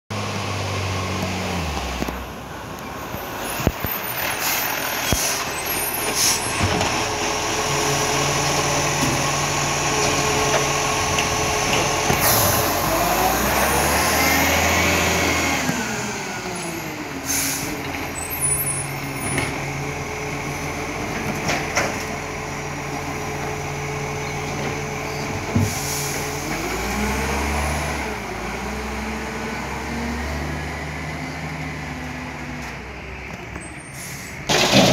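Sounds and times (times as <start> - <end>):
diesel truck engine running: 0.1 - 34.9
air brake hisses: 4.3 - 6.6, 12.2 - 12.9, 17.2 - 17.8, 25.6 - 26.3, 33.9 - 34.4
engine revving: 6.2 - 17.6, 25.8 - 32.5.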